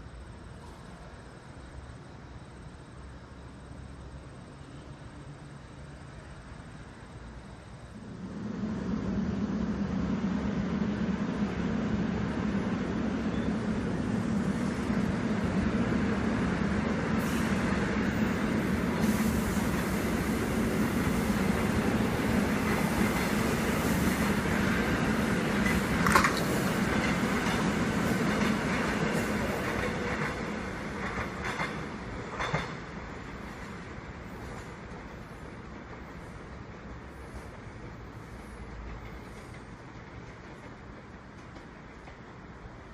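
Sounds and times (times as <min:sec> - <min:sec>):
electric train rumble: 0:00.0 - 0:42.9.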